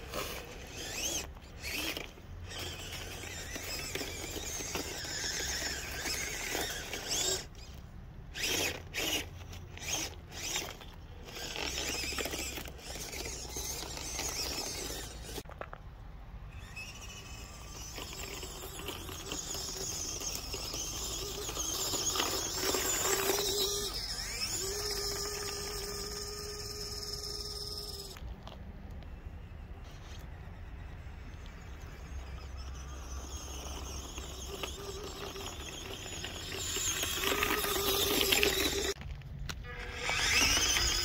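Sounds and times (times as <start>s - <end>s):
toy car motor whining: 0.0s - 15.5s, 16.5s - 41.0s
tyres crunching ice: 31.4s - 41.0s.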